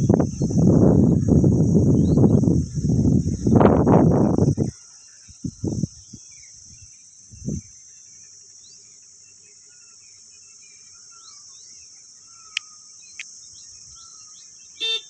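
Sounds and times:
insects droning: 0.0s - 15.0s
bird chirps: 9.6s - 15.0s.

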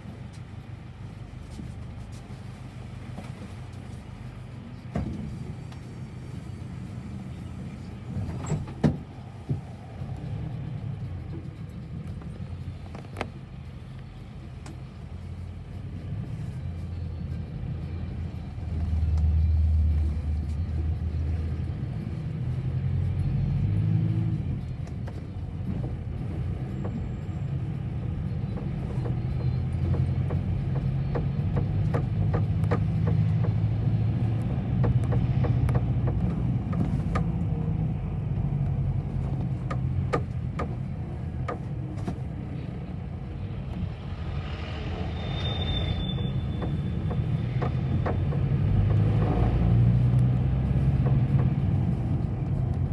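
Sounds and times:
bus engine rumble: 0.0s - 52.9s
rattles in bus cabin: 0.0s - 52.9s
high-pitched squeal: 44.3s - 47.2s.

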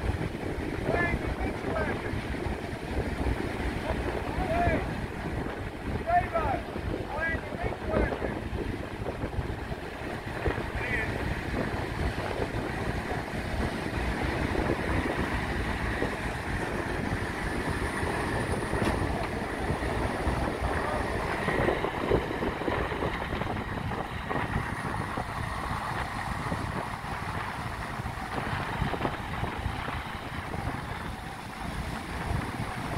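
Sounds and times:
engine running under load: 0.0s - 32.9s
wind rumbling on microphone: 0.0s - 32.9s.

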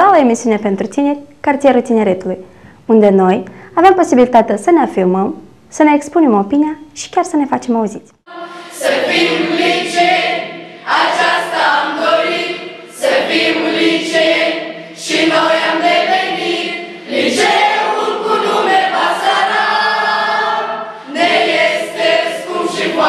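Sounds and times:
children's choir singing: 8.3s - 23.0s.

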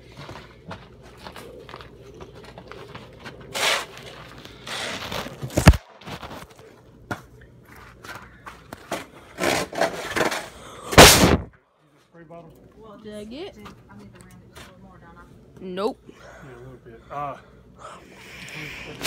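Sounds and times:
sharp loud thump: 11.0s - 11.5s.

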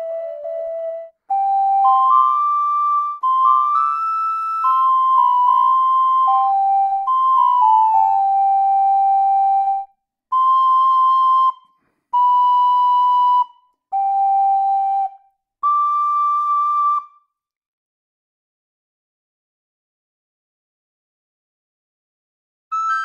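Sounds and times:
recorder playing held notes: 0.0s - 17.2s, 22.7s - 23.0s.

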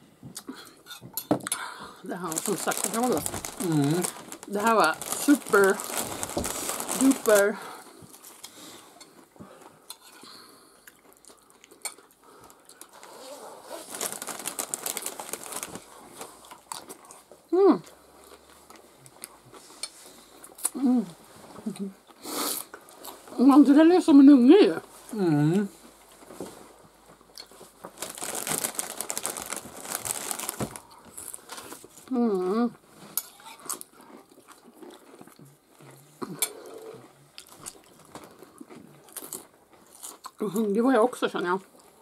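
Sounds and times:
crunching chip being chewed: 2.2s - 9.3s, 10.8s - 20.8s, 27.1s - 32.1s, 33.2s - 40.6s.

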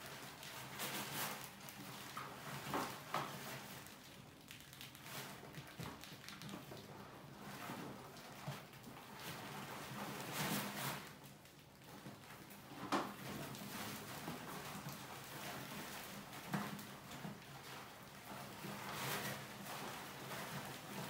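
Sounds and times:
mice scratching and scrabbling: 0.0s - 21.0s.

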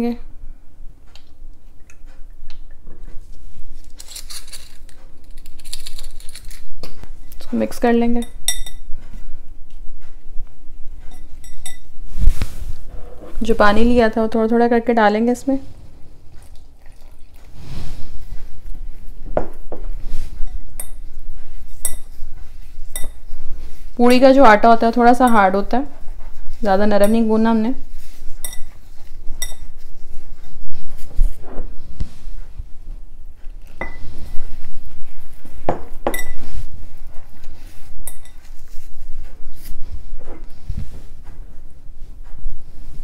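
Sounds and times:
dough rustling: 3.0s - 43.0s
clinks against glass bowl: 11.1s - 11.9s, 36.1s - 36.4s
glass bowl clinking: 11.1s - 11.9s, 22.9s - 23.2s, 28.4s - 28.7s, 29.4s - 29.7s, 33.8s - 34.0s, 35.7s - 36.4s
water pouring into flour: 16.5s - 17.5s.

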